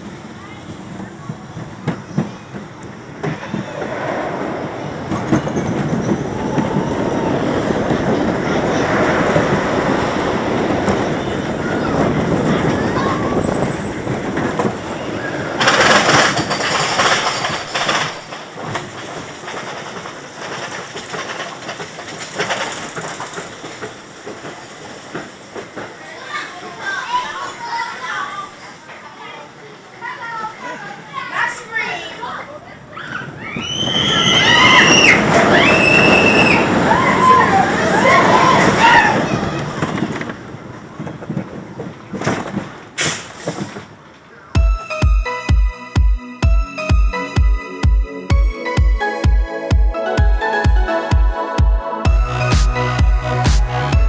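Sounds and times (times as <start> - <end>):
roller coaster chain lift clattering: 0.6 - 28.4, 33.0 - 44.3
electronic music with steady beat: 44.6 - 54.0.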